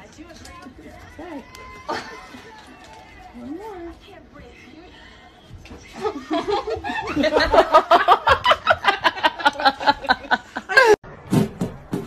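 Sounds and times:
person laughing hard: 6.0 - 11.0.

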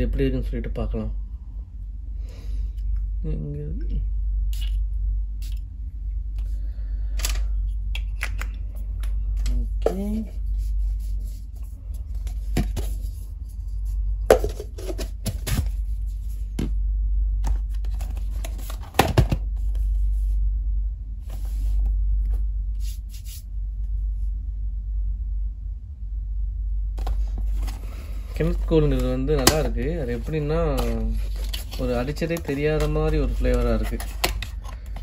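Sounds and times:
steady low hum: 0.0 - 35.0
packaging clicks and knocks: 17.4 - 19.4, 28.9 - 29.8, 30.8 - 35.0
cardboard rustling: 17.5 - 19.8, 27.0 - 35.0.

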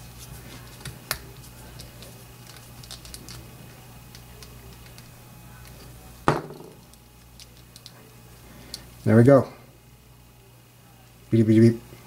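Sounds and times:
loud knock on bench: 6.3 - 6.8.

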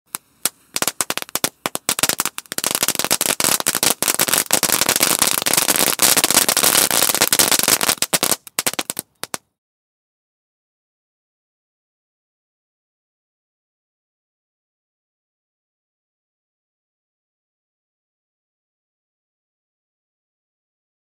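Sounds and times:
fireworks crackling: 0.1 - 9.4.

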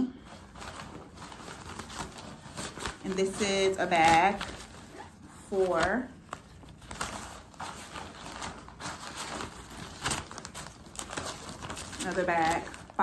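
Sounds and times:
fabric bags rustling: 0.0 - 13.0.

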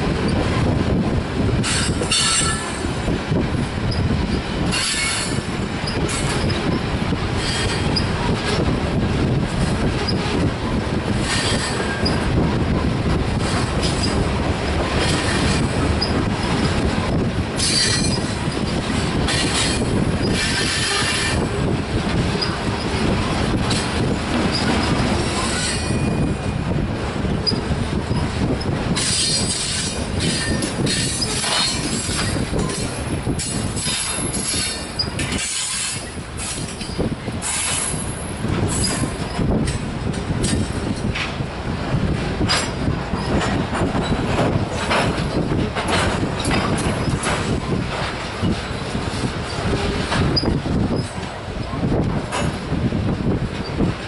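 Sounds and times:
steel wheels rumbling on rail: 0.0 - 54.0
high-pitched wheel squeal: 24.5 - 26.3.

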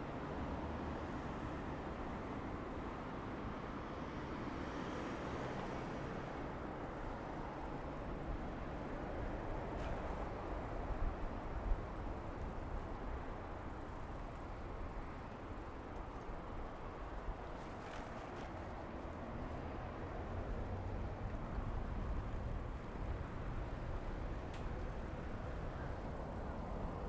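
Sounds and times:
bicycle rolling on road: 5.4 - 27.0.

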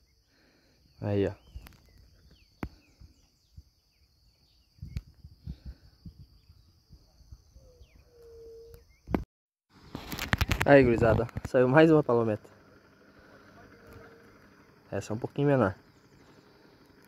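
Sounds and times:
bird chirps: 0.0 - 9.2.

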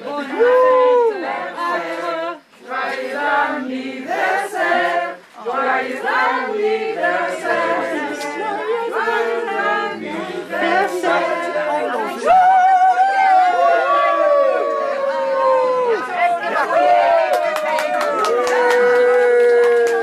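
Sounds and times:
group singing without instruments: 0.0 - 14.1.

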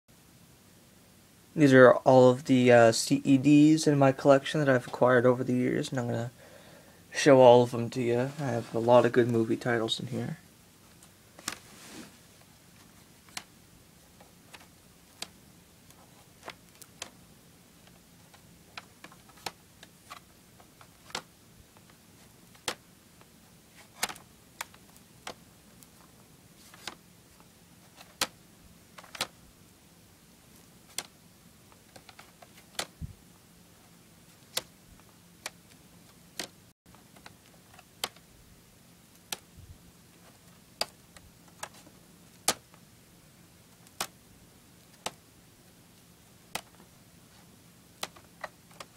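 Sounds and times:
plastic caddies clacking: 17.8 - 21.3, 29.0 - 29.4, 31.7 - 33.0.

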